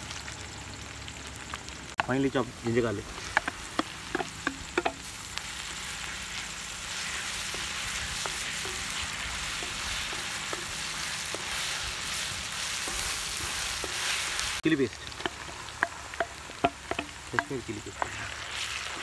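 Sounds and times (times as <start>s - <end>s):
food sizzling in hot oil: 0.0s - 19.0s
wooden spatula tapping a wok: 3.2s - 5.1s, 7.4s - 11.6s, 15.1s - 18.3s.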